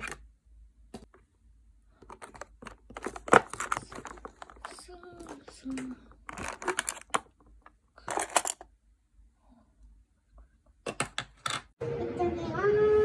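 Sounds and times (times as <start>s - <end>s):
plastic cases clattering in drawer: 2.0s - 8.6s.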